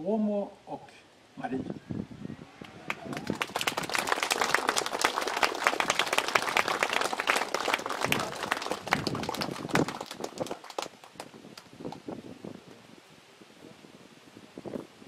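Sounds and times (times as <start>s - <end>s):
audience applauding: 2.6s - 12.1s.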